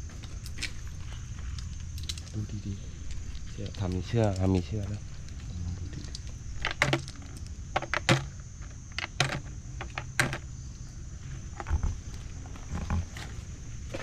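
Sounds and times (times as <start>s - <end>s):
snail shells clicking: 1.5s - 10.4s.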